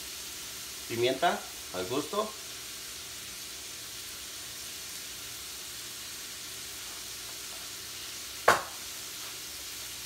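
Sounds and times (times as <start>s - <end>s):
shrimp sizzling in a frying pan: 0.0s - 10.0s
sharp knock: 8.4s - 8.8s.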